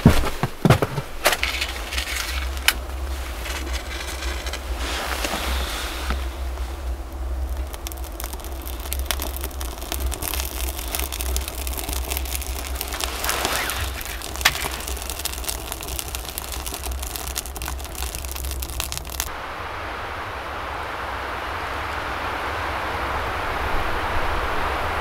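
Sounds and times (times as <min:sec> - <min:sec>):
wood fire crackling: 0:00.0 - 0:19.7
stove low rumble: 0:00.7 - 0:25.0.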